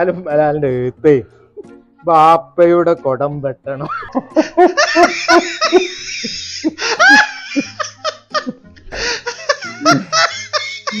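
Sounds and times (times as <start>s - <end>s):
men laughing: 3.8s - 11.0s.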